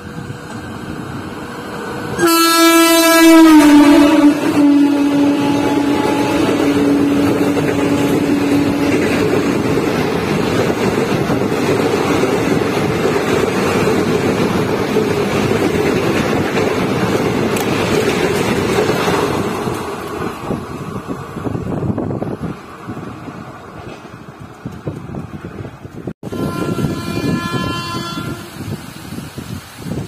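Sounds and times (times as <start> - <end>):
train wheels rumbling on rails: 0.0 - 30.0
train horn: 2.0 - 9.5, 26.2 - 28.8.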